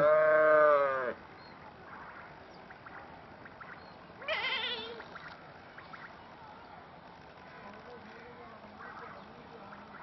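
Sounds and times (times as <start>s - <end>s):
wavering animal call: 3.5s - 6.1s.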